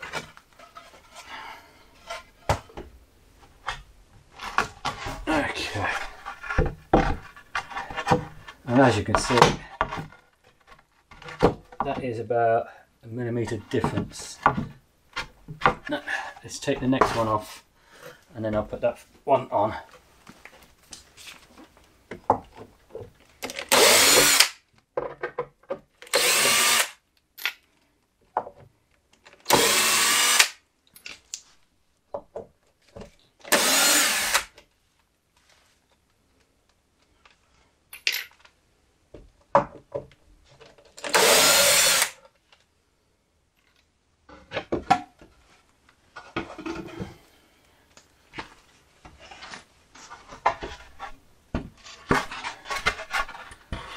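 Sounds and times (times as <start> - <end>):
knocks and clicks of wood and screws: 22.1 - 27.7.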